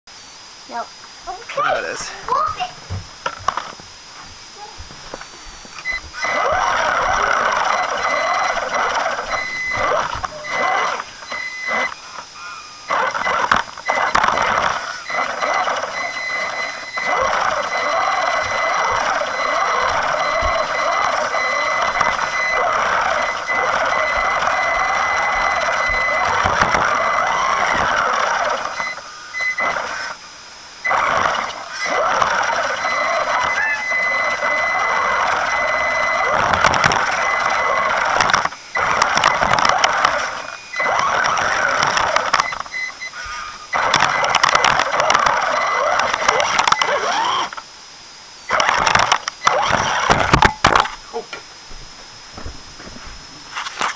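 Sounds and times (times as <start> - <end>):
toy car motor whining: 5.8 - 30.2, 30.8 - 47.6, 48.5 - 50.5.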